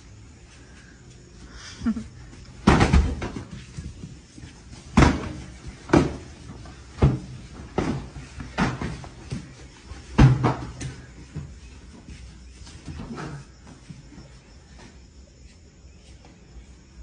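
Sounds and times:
people falling onto tiled floor: 1.8s - 13.9s
pillows thumping bodies: 2.2s - 13.9s.

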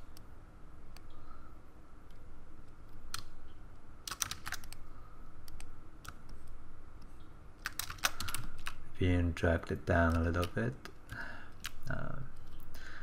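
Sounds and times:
computer keyboard clicks: 4.0s - 4.8s, 7.6s - 8.8s, 9.9s - 12.7s.

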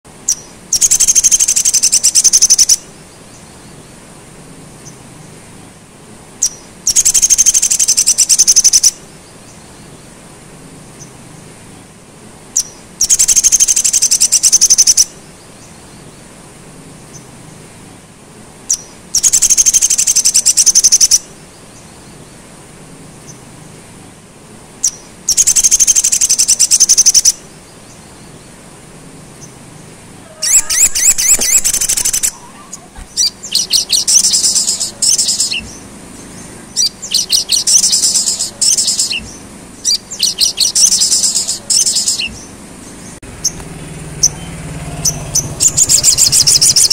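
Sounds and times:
sunbird high fast trilling: 0.3s - 2.9s, 6.4s - 9.0s, 24.8s - 27.4s, 29.4s - 39.2s, 39.8s - 42.3s, 43.4s - 46.9s.

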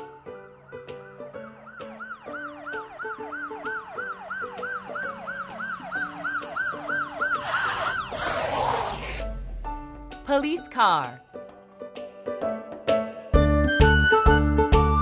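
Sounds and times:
cartoon police siren yelp: 1.7s - 8.2s
rushing noise: 5.9s - 10.3s.

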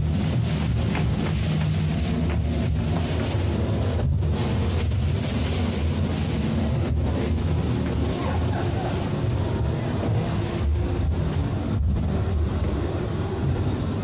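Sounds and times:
deep low hum: 0.0s - 14.0s
electronic noise hiss: 0.0s - 14.0s.

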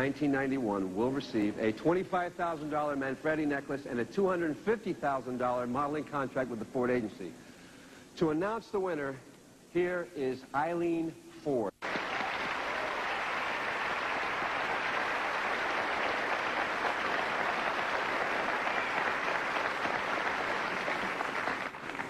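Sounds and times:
audience applauding: 11.8s - 22.0s.

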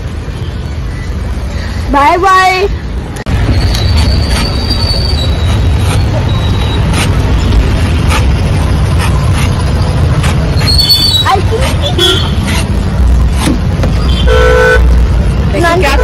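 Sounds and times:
street traffic rumble: 0.0s - 16.0s.

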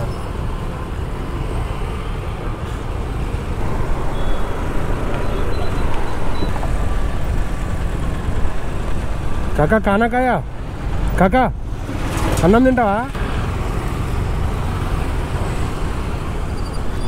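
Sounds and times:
motorcycle engine rumble: 2.8s - 16.4s
wind on microphone: 3.6s - 9.4s.

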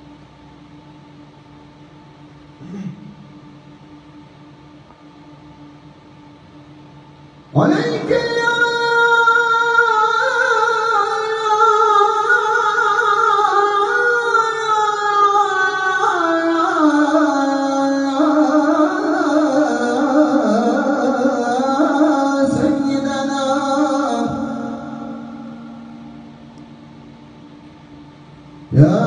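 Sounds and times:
man chanting call to prayer: 7.6s - 26.2s, 28.7s - 29.0s.

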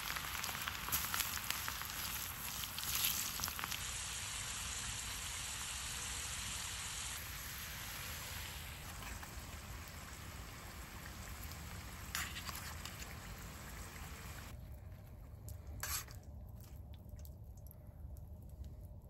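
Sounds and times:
oil sizzling in a skillet: 0.0s - 14.6s.

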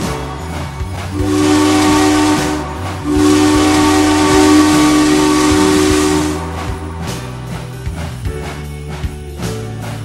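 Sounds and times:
steam hissing: 0.0s - 8.0s
steam locomotive whistle blowing: 1.1s - 7.3s.

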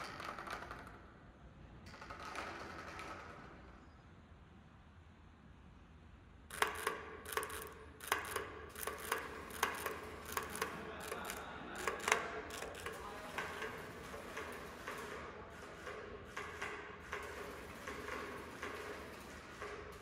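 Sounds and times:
sculpture ticking and rattling: 6.5s - 20.0s.

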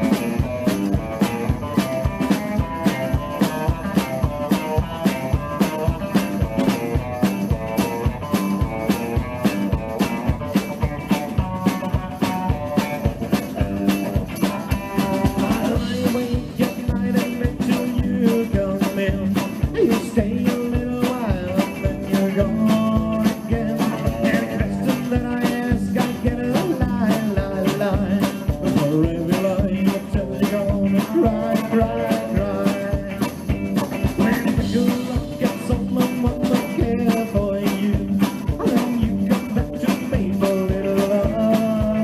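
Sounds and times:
drum kit beat: 0.0s - 42.0s
electric guitars: 0.0s - 42.0s
slapped upright double bass: 0.0s - 42.0s
tambourine jingling: 0.2s - 16.8s.

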